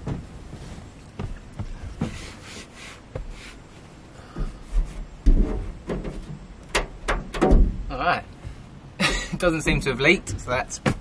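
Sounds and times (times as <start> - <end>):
bedding rustling: 0.0 - 6.4
dull thumps on bed: 10.3 - 11.0.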